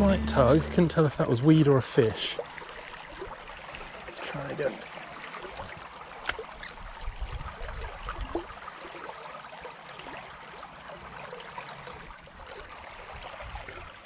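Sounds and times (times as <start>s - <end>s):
brief low rumble: 0.0s - 1.2s
stream babbling: 0.0s - 14.0s.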